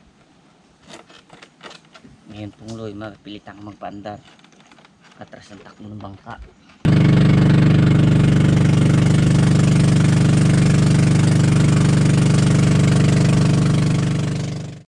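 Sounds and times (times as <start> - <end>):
small boat engine running: 6.8 - 14.9.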